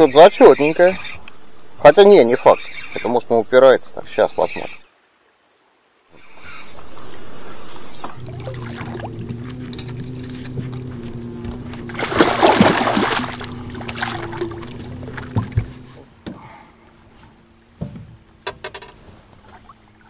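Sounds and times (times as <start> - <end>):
steady low hum: 6.2 - 20.0
fish thrashing and splashing: 6.7 - 15.9.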